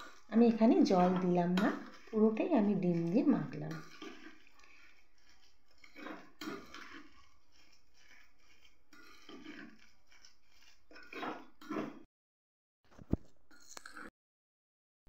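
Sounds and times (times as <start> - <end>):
mixture squelching: 0.0 - 12.0
spoon scraping glass bowl: 0.0 - 12.1, 13.5 - 14.1.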